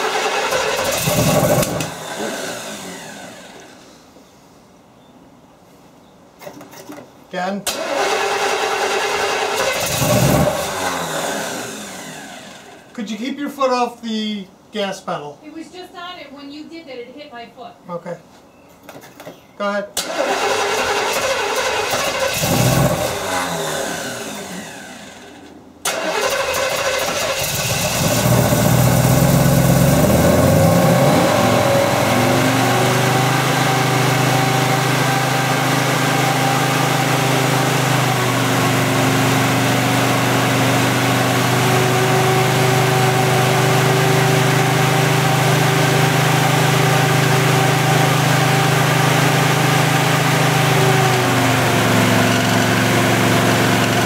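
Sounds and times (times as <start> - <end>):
engine revving and idling: 0.0 - 3.7, 7.8 - 12.8, 20.2 - 25.3, 26.0 - 54.0
starter cranking engine: 7.7 - 12.1, 20.0 - 24.8, 25.9 - 29.4.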